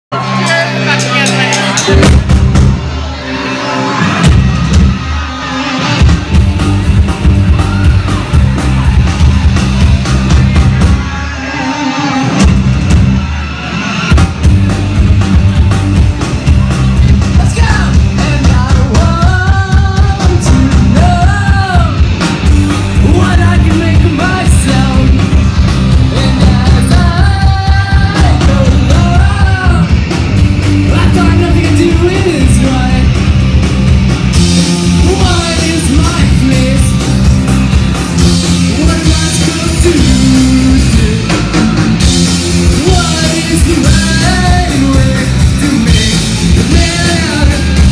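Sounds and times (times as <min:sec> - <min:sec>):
drum kit: 0:00.1 - 0:47.9
electric bass: 0:00.1 - 0:47.9
electric guitars: 0:00.1 - 0:47.9
lead vocalist singing: 0:17.4 - 0:33.2, 0:34.9 - 0:37.2, 0:38.4 - 0:47.9.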